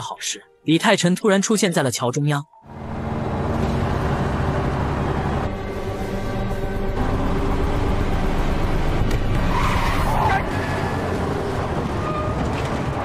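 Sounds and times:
jeep engine running: 0:02.7 - 0:13.0
tyres skidding: 0:02.7 - 0:13.0.

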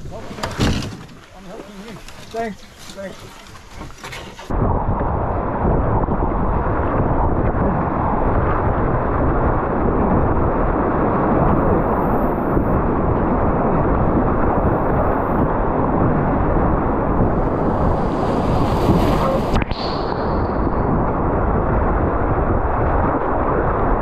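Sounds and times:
rushing whitewater: 0:17.2 - 0:20.7.

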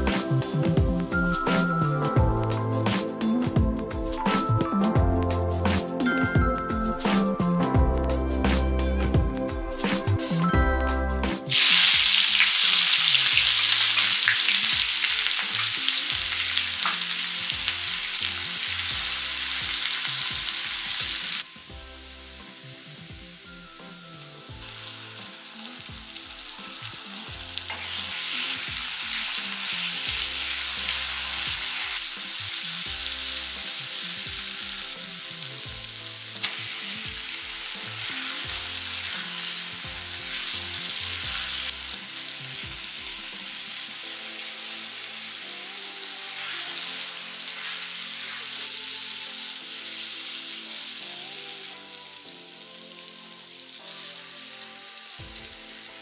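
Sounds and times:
food sizzling in hot oil: 0:11.4 - 0:56.0
spatula stirring: 0:46.3 - 0:49.1.

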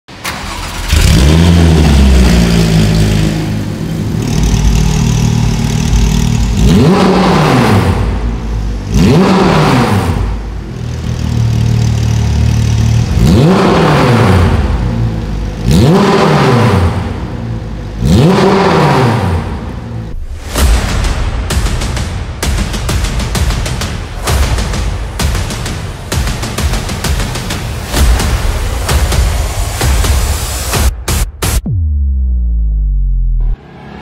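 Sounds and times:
sports car engine revving: 0:00.6 - 0:20.6.

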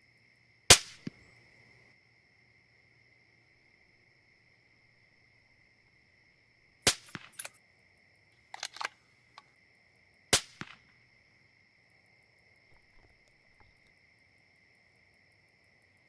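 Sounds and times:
rifle shots: 0:06.9 - 0:07.5, 0:10.4 - 0:10.8
clicks and rattles: 0:07.0 - 0:07.6, 0:08.5 - 0:09.5.

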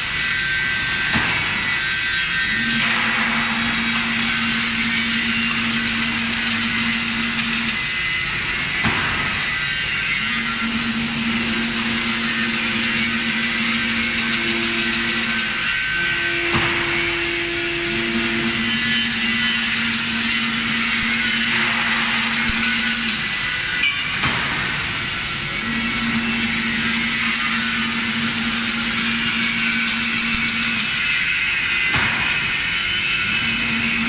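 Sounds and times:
machine mechanical hiss: 0:00.0 - 0:34.0
motor hum: 0:01.0 - 0:34.0
sharp machine clack: 0:10.1 - 0:25.0.

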